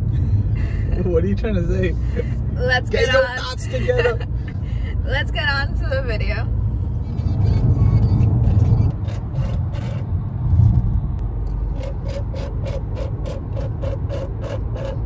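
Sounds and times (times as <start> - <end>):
road rumble inside car: 0.0 - 15.0
turn signal ticking: 11.1 - 15.0.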